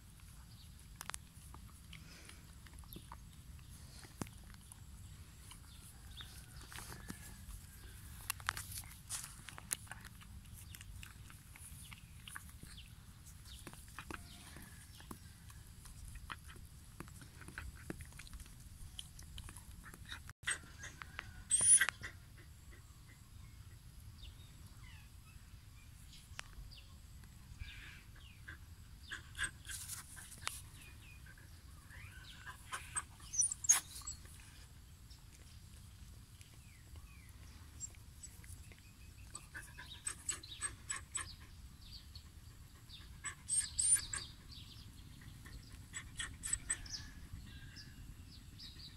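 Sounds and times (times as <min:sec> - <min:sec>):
dog licking and nibbling: 0:08.3 - 0:20.3.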